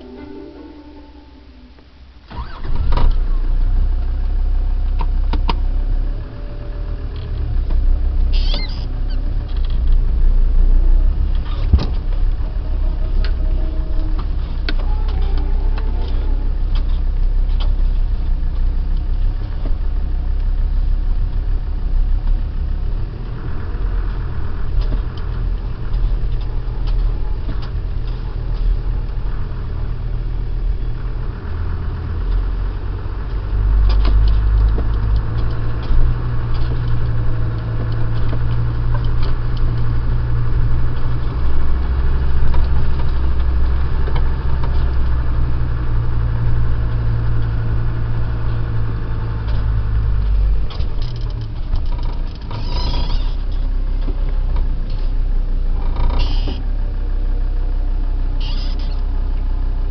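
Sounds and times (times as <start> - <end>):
car engine starting and running: 0.0 - 59.9
knocks and rattles in cab: 11.2 - 12.6, 33.4 - 46.0.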